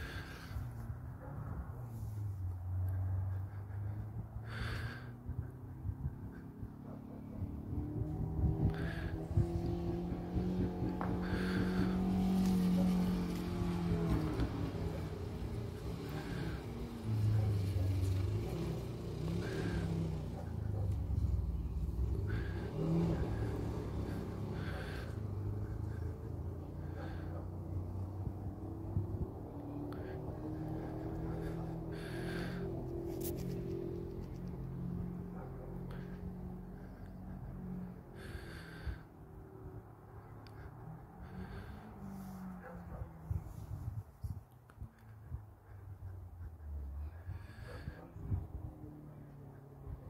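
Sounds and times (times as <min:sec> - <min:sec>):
distant vehicle engine rumble: 0:00.0 - 0:50.0.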